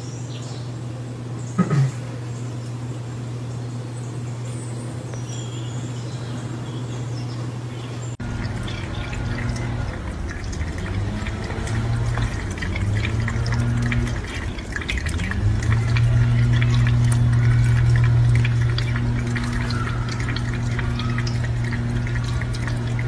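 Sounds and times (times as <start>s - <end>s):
steady low hum: 0.0s - 23.0s
cats drinking: 8.2s - 23.0s
faucet water splashing into sink: 8.2s - 23.0s.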